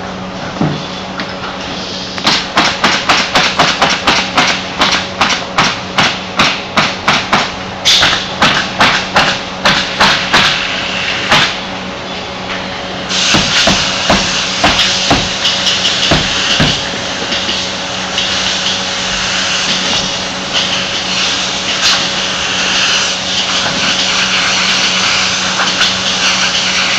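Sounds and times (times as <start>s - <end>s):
factory hum: 0.0s - 26.9s
pneumatic nail gun shots: 2.2s - 11.6s, 13.1s - 17.6s
short air hiss: 13.1s - 13.6s.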